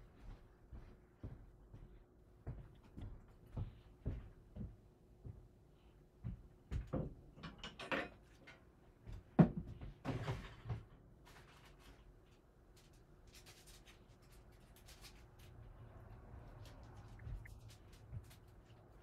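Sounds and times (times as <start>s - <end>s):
objects knocking and clattering: 6.7s - 11.7s.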